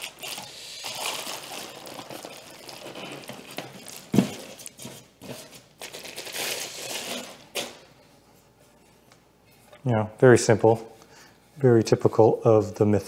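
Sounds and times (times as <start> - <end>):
plastic wrapping rustling: 0.0 - 8.0.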